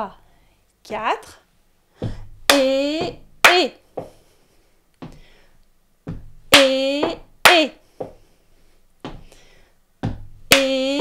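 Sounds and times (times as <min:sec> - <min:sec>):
footsteps on wooden floor: 0:02.0 - 0:02.3, 0:04.0 - 0:04.2, 0:05.0 - 0:05.3, 0:06.0 - 0:06.4, 0:07.9 - 0:08.2, 0:09.0 - 0:09.4
woman vocalizing rhythm: 0:02.0 - 0:04.2, 0:06.1 - 0:08.2, 0:10.0 - 0:11.0.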